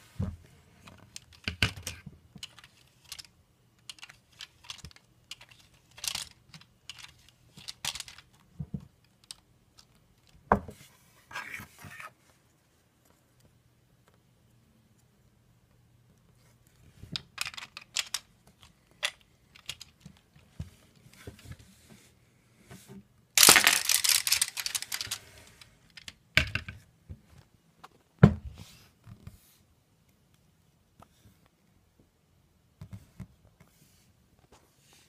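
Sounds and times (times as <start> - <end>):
plastic pieces clicking: 1.0 - 8.4, 9.0 - 10.4, 17.2 - 20.2, 23.4 - 26.7
plastic pieces rattling: 1.1 - 8.4, 17.2 - 20.1, 23.4 - 26.2.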